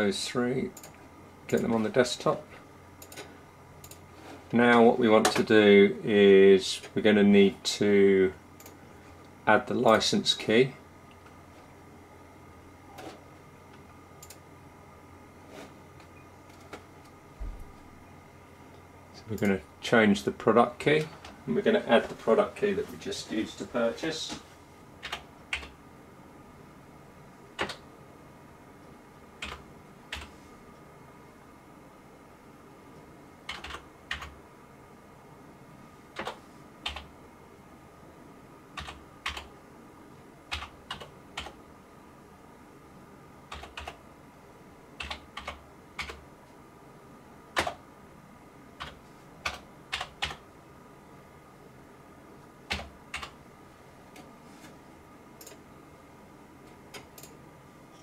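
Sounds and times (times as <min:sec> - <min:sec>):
slow typing on computer keyboard: 0:00.8 - 0:01.7, 0:03.0 - 0:04.0, 0:08.6 - 0:08.8, 0:14.2 - 0:14.4, 0:25.0 - 0:25.8, 0:27.6 - 0:27.8, 0:29.4 - 0:30.3, 0:33.5 - 0:34.4, 0:36.2 - 0:37.1, 0:38.8 - 0:39.5, 0:40.5 - 0:41.6, 0:43.5 - 0:44.0, 0:45.0 - 0:46.2, 0:47.6 - 0:47.8, 0:48.8 - 0:50.4, 0:52.7 - 0:53.4, 0:55.4 - 0:55.6, 0:56.7 - 0:57.4.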